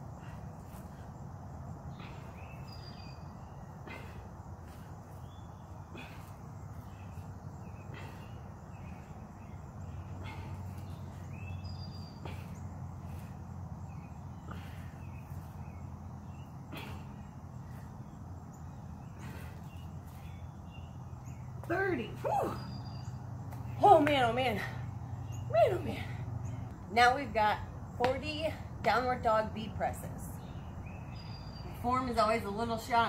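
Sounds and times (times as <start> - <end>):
steady low hum: 0.0 - 33.0
bird chirps: 1.9 - 23.8, 30.3 - 31.8.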